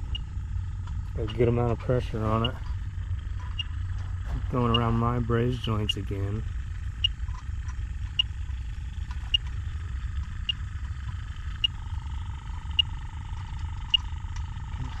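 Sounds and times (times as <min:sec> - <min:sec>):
leak detector beeping: 0:00.0 - 0:00.4, 0:02.2 - 0:02.7, 0:03.4 - 0:03.8, 0:04.6 - 0:05.0, 0:10.4 - 0:10.7, 0:11.6 - 0:12.0, 0:12.6 - 0:13.0
steady electronic hum: 0:00.0 - 0:15.0.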